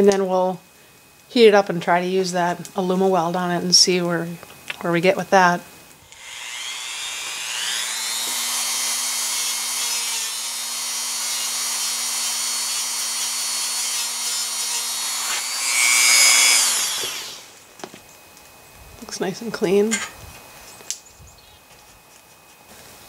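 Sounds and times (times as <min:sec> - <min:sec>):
rotary tool wire brush whining: 0:06.0 - 0:17.7.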